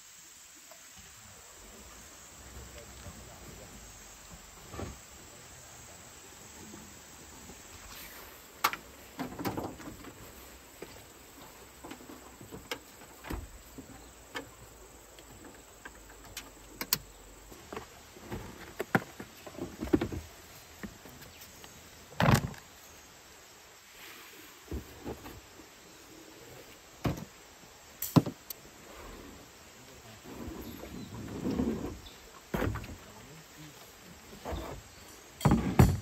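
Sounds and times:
insects chirring: 0.0 - 36.0
camping gear clicks and knocks: 15.2 - 22.7, 28.0 - 28.6.

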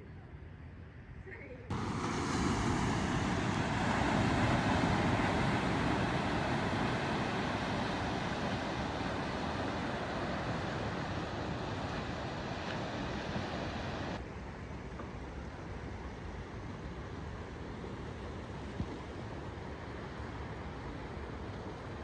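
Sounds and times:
wind: 0.0 - 22.0
ocean surf rushing: 1.7 - 14.2.

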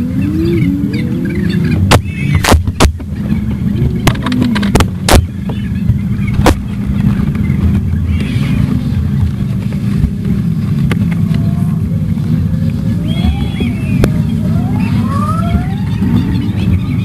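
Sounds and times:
vehicle engines rumbling: 0.0 - 17.0
sharp knocks: 1.9 - 3.2.

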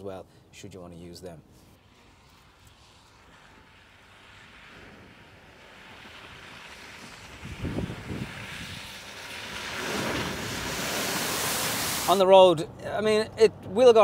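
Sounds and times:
water spraying from puddle: 2.2 - 12.2.

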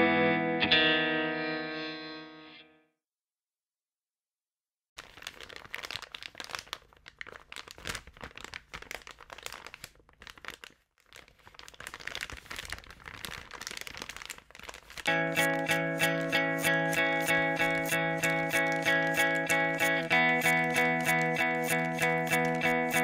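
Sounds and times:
music with pulsing beat: 15.3 - 23.0.

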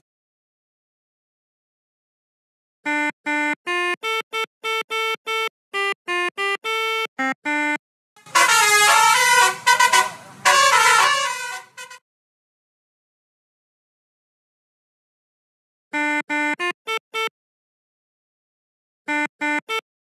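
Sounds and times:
musical bus horn notes: 2.8 - 12.0, 15.9 - 17.3, 19.1 - 19.8.

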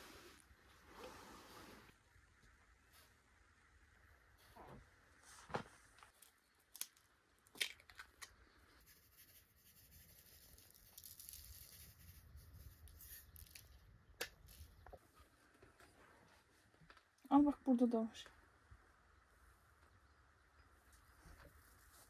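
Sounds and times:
baking paper and foil crinkling: 10.1 - 13.7.

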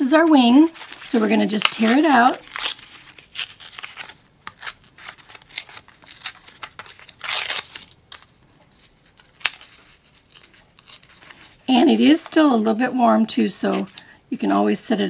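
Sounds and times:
card tearing: 0.6 - 11.6.

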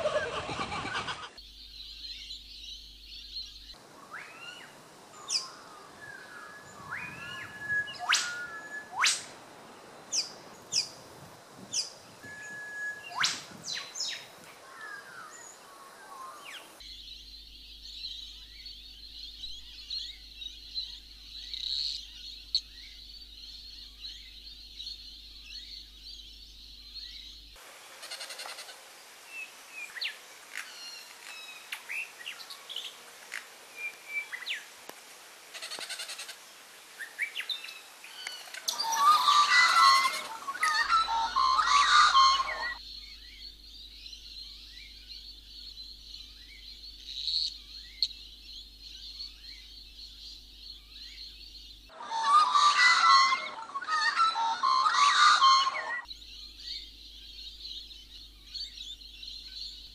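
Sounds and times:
bird chirps and calls: 0.0 - 11.0, 37.0 - 59.9
dense high-pitched bird chorus: 0.0 - 33.1, 35.6 - 59.9.

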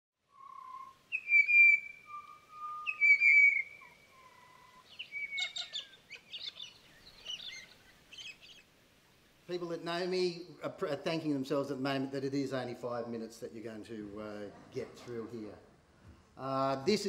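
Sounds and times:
birds whistling song: 0.2 - 8.7
birds chattering calls: 0.2 - 9.4.

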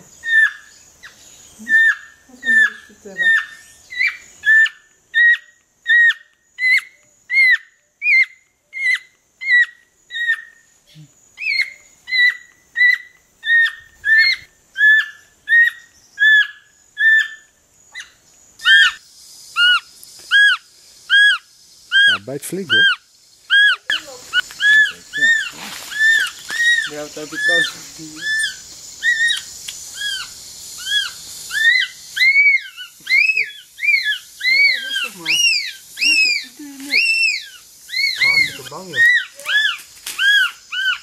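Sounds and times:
monkey high-pitched distress cries: 0.2 - 0.7, 1.6 - 10.5, 11.4 - 17.4, 18.0 - 19.0, 19.6 - 41.0.

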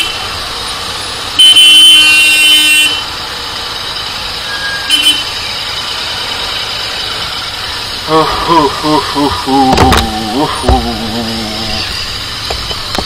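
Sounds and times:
street traffic: 0.0 - 13.0
vehicle horn blaring: 1.4 - 3.1, 4.8 - 5.4.

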